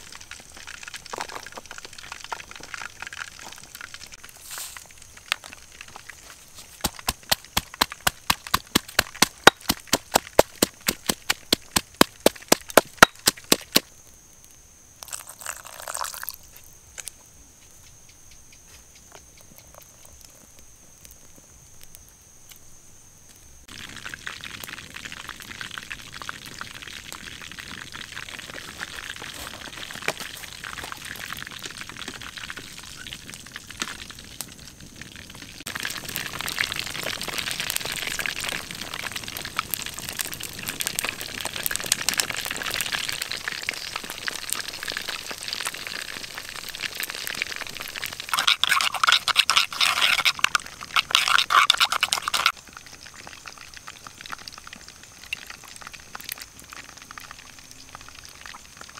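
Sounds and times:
hot oil sizzling: 0.0s - 13.9s, 23.6s - 58.9s
pestle pounding in stone mortar: 6.8s - 13.8s, 48.3s - 52.5s
liquid pouring: 15.0s - 16.4s, 47.2s - 52.5s.

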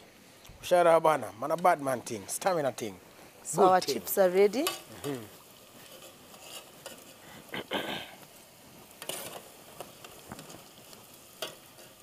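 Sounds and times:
chips sizzling in oil: 0.0s - 12.0s
metal spoon scraping pot: 5.9s - 7.1s.

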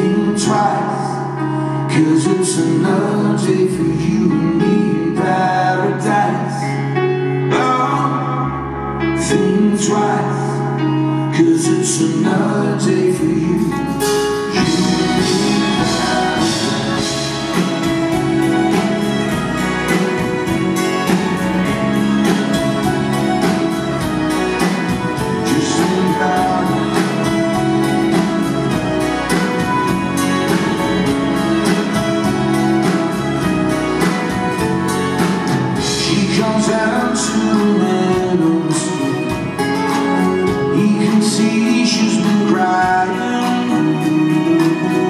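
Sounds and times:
live band playing: 0.0s - 45.0s
bowed violin: 12.8s - 45.0s.

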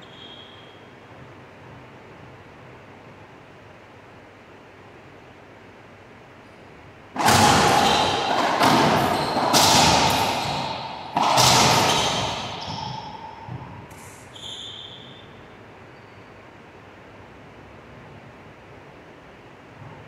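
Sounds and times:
shoe squeak: 0.0s - 0.9s, 7.2s - 16.4s
racquetball cracking off walls: 7.2s - 14.2s.

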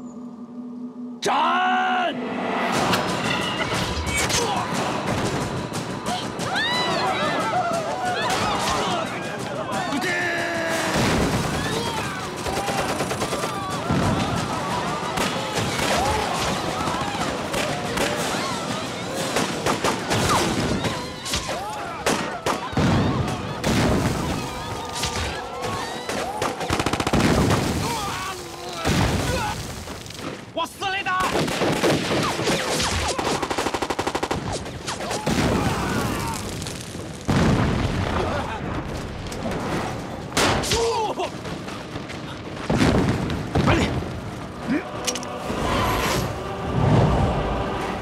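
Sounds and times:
man shouting: 1.2s - 2.2s
heavy gunfire: 7.0s - 28.2s, 31.2s - 44.3s
dense gunshots: 10.3s - 21.0s, 22.0s - 28.2s, 31.2s - 44.3s
machine-gun burst: 10.4s - 20.8s, 25.8s - 27.9s, 31.3s - 35.6s.

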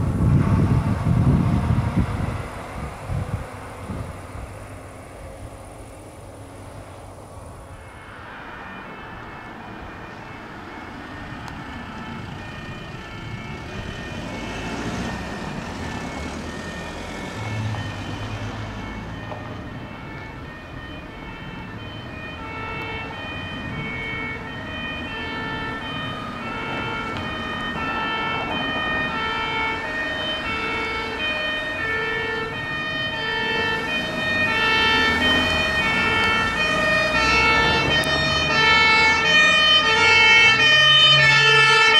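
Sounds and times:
vehicle engines and road noise: 0.0s - 41.9s
fire engine two-tone horn: 33.2s - 41.9s.

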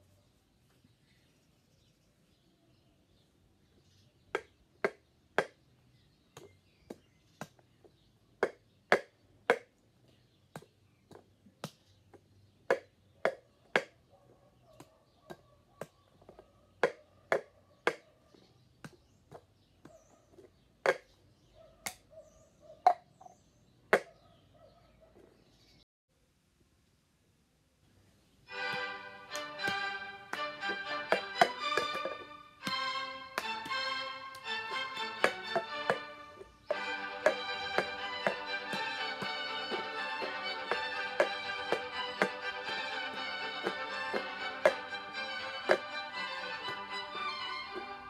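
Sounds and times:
plastic cups knocking on tiled floor: 28.7s - 47.0s.

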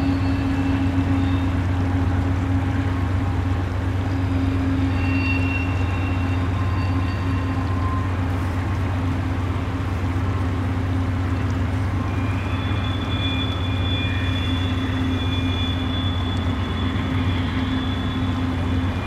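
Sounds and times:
high-pitched wheel squeal: 0.0s - 1.7s, 4.1s - 8.2s, 12.0s - 19.0s
freight train rumble: 0.0s - 19.0s.

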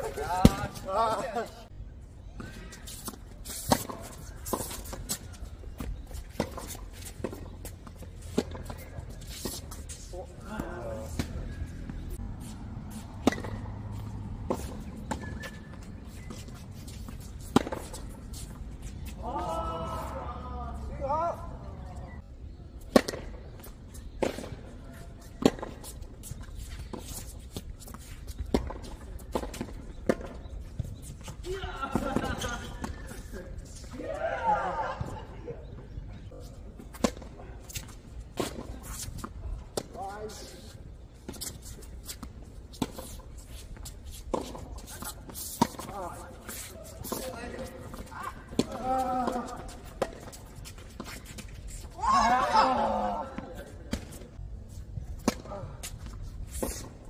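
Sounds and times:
tennis balls struck with rackets: 13.1s - 16.3s, 17.4s - 18.1s, 22.8s - 23.5s, 44.3s - 50.5s
tennis ball struck by rackets: 13.2s - 13.8s, 22.9s - 23.3s.

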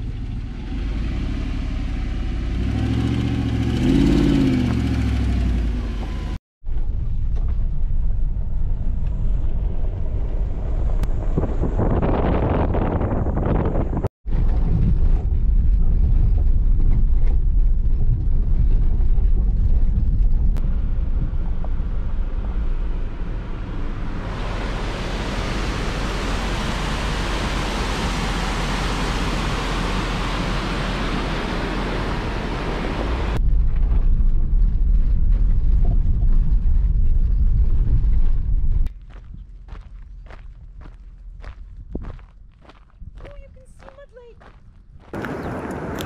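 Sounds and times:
vehicle road and engine rumble: 0.0s - 46.0s
creek water rushing: 23.8s - 33.4s.

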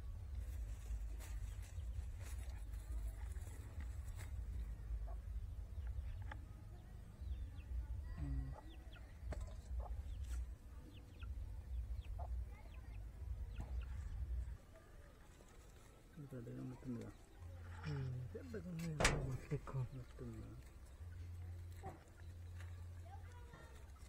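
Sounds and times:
steady low rumble: 0.0s - 14.6s.

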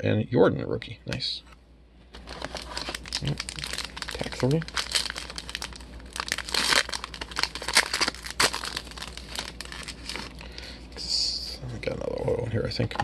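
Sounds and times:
foil wrapper crinkling: 2.2s - 10.5s.

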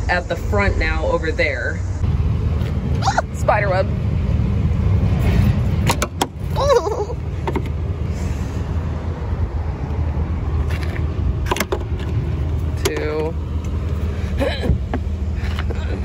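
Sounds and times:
hood latch clicks: 5.8s - 6.4s.

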